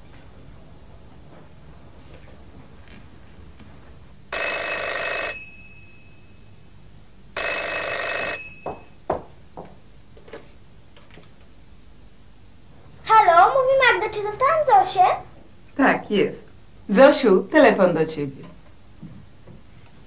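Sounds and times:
landline telephone ringing: 0:04.3 - 0:06.4, 0:07.4 - 0:09.0.

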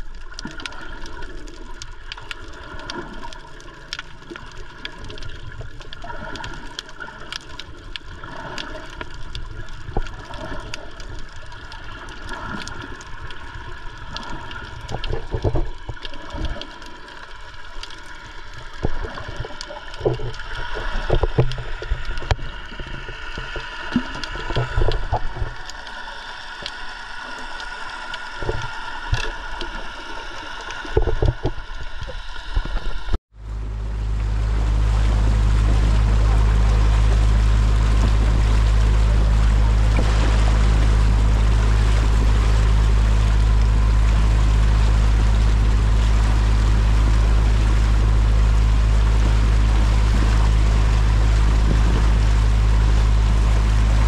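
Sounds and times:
water splashes: 0:00.0 - 0:54.0
steady hum: 0:01.6 - 0:54.0
loud low rumble: 0:33.0 - 0:54.0.

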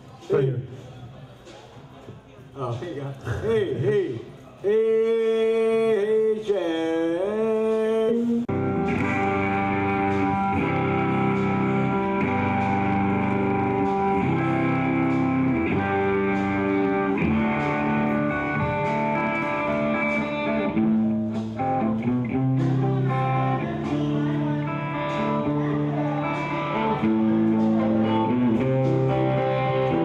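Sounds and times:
electric guitar chords: 0:08.1 - 0:30.0.

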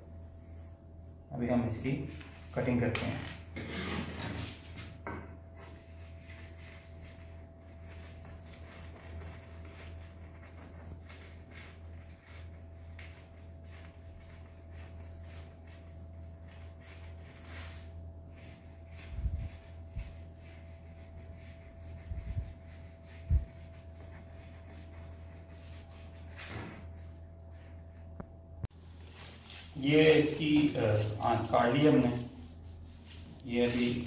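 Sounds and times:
steady low hum: 0:00.0 - 0:34.0
paper rustle: 0:28.8 - 0:34.0.

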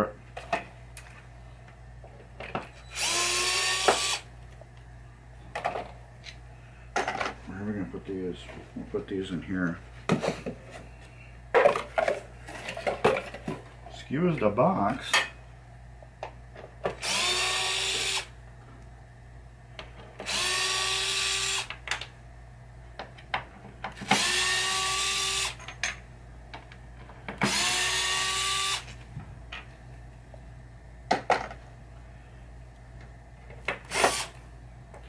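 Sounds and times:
cordless screwdriver whirring: 0:02.9 - 0:04.3, 0:17.0 - 0:18.3, 0:20.2 - 0:21.7, 0:24.0 - 0:25.6, 0:27.4 - 0:28.9, 0:33.9 - 0:34.4.

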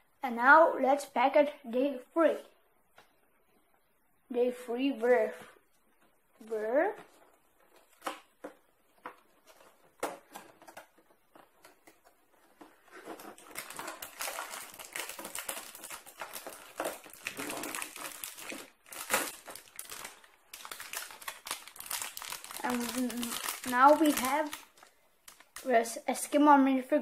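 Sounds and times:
plastic bag crinkling: 0:09.4 - 0:25.8.

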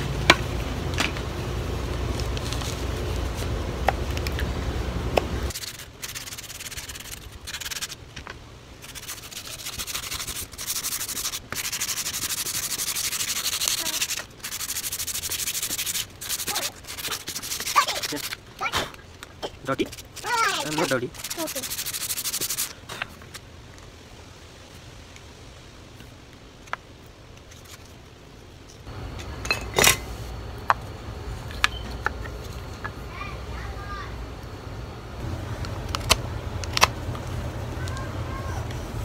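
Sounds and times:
low steady hum: 0:00.0 - 0:39.0
sanding sponge rubbing wood: 0:05.5 - 0:08.0, 0:08.8 - 0:18.4, 0:19.7 - 0:22.7.

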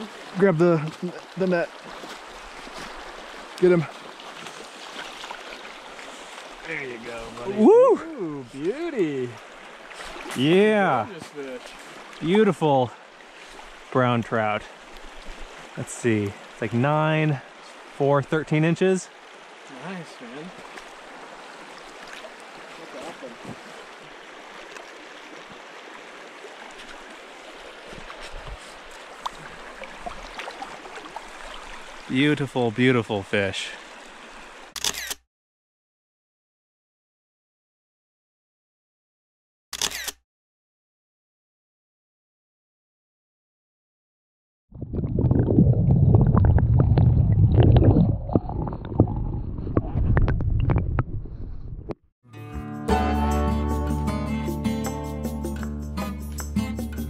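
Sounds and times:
stream running: 0:00.0 - 0:35.1
underwater stream rumble: 0:44.7 - 0:52.0.

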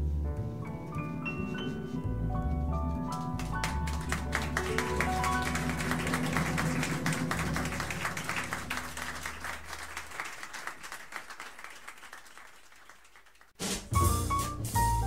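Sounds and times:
audience applauding: 0:03.1 - 0:13.6.

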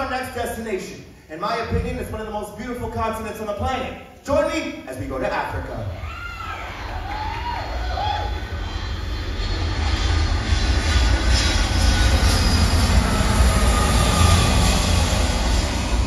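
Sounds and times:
deep rumble with hiss: 0:06.7 - 0:16.0.

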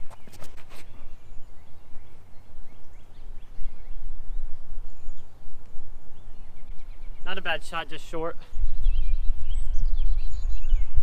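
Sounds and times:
footsteps scuffing on concrete: 0:00.0 - 0:01.1
small birds chirping: 0:00.0 - 0:11.0
wind rumbling on microphone: 0:00.0 - 0:11.0.

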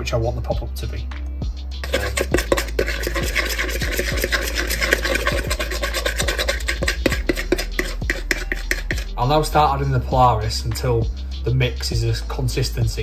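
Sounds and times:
metal spoon scraping a bowl: 0:01.8 - 0:09.6.

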